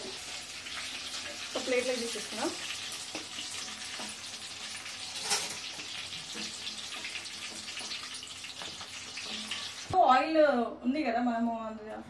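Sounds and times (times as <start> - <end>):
hot oil sizzling: 0.0 - 10.0.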